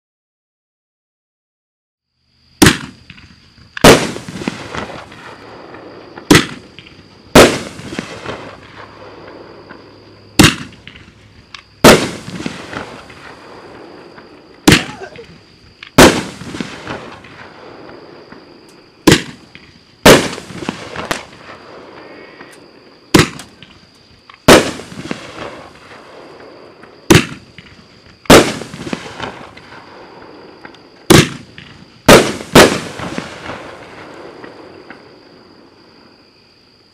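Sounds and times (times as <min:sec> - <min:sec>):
firework shot launching: 0:02.6 - 0:09.8, 0:10.4 - 0:11.2, 0:11.8 - 0:18.4, 0:19.0 - 0:21.6, 0:22.4 - 0:23.8, 0:24.4 - 0:26.2, 0:27.1 - 0:30.0, 0:31.1 - 0:35.0
firework shell bursting: 0:10.4 - 0:13.4.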